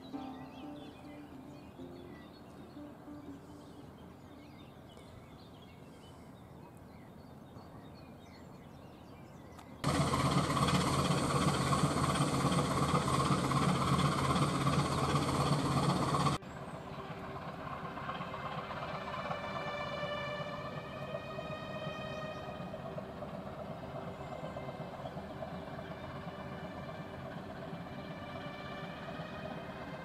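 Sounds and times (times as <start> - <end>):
music: 0.0 - 4.5
diesel engine droning: 0.0 - 6.2, 9.8 - 30.0
faint birdsong: 0.0 - 30.0.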